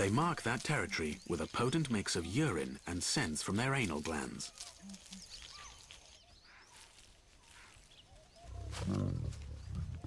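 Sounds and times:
faint bird chirps: 4.5 - 10.0
lion growling: 8.5 - 10.0.

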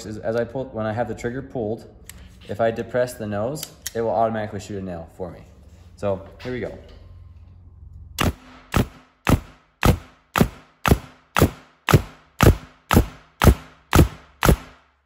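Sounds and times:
nail gun firing into wood: 8.2 - 14.9.

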